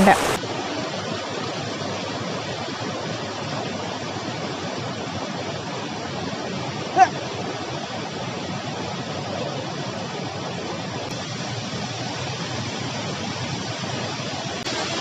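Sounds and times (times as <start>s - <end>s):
stream rushing: 0.0s - 0.4s, 4.2s - 10.6s.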